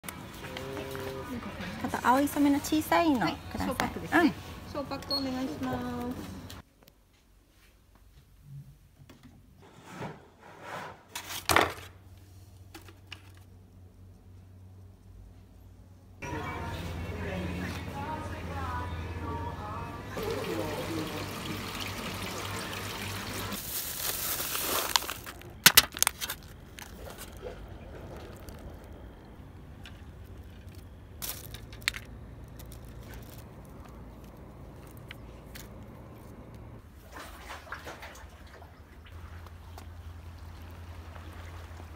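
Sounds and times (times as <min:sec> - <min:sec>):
plastic pack crinkling: 0:23.6 - 0:36.6
fishing gear rustling: 0:23.6 - 0:36.8.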